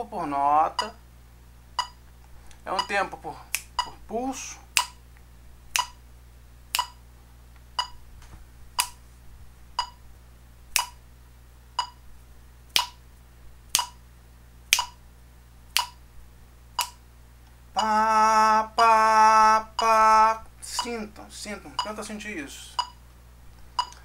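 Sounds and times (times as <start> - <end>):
metronome clicking: 0.8 - 1.0, 1.8 - 2.0, 2.7 - 4.0, 4.7 - 5.0, 5.7 - 6.0, 6.7 - 7.0, 7.8 - 8.0, 8.8 - 9.0, 9.8 - 10.0, 10.7 - 11.0, 11.8 - 12.0, 12.7 - 13.0, 13.7 - 14.0, 14.7 - 15.0, 15.7 - 16.0, 16.8 - 17.0, 19.8 - 20.0, 20.7 - 21.1, 21.8 - 22.1, 22.8 - 23.0, 23.8 - 24.0.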